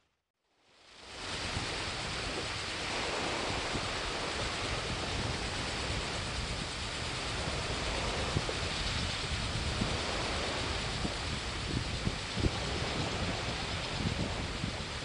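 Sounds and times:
waves washing on shore: 0:00.8 - 0:15.0
wind buffeting microphone: 0:01.1 - 0:15.0.

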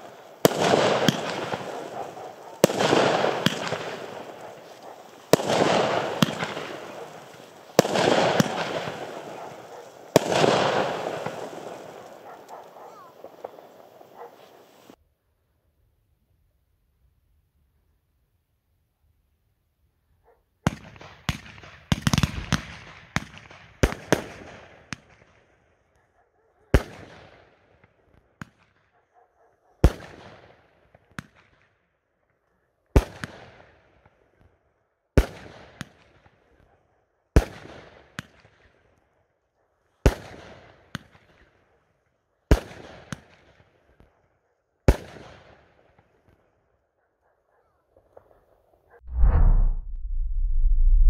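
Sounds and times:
firework bangs: 0:00.0 - 0:14.9.

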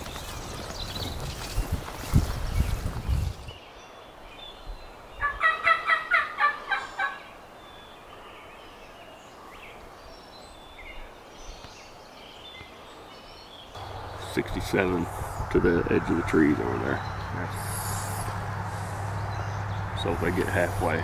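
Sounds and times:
turkey gobbling: 0:05.2 - 0:07.3.

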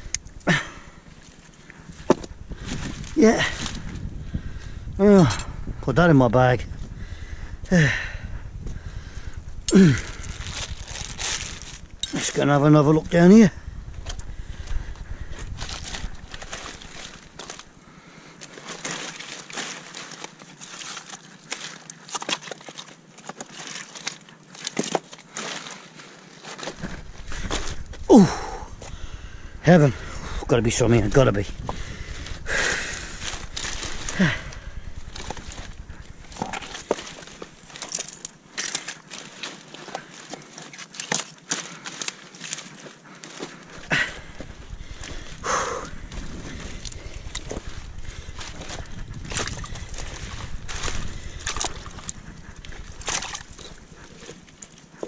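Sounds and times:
short crackles and clicks: 0:08.7 - 0:17.7, 0:26.6 - 0:40.0, 0:43.7 - 0:55.0
wet kelp rustling and slapping: 0:09.7 - 0:12.5, 0:18.4 - 0:29.1, 0:31.0 - 0:55.0.

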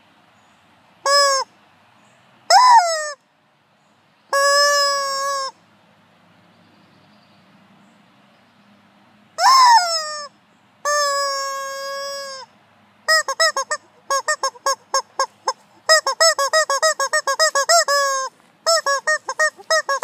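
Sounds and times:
rubber chicken toy squawking: 0:01.0 - 0:01.5, 0:02.5 - 0:03.2, 0:04.3 - 0:05.6, 0:09.4 - 0:12.5, 0:13.1 - 0:20.0.

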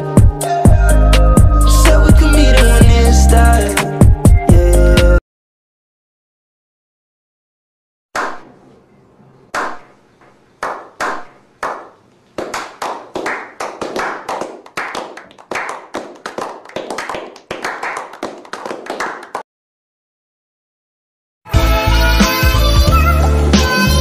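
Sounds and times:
people clapping: 0:10.6 - 0:19.4.

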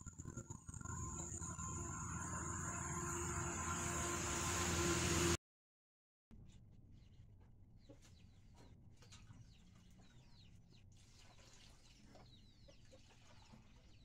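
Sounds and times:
low hum: 0:00.0 - 0:05.4.

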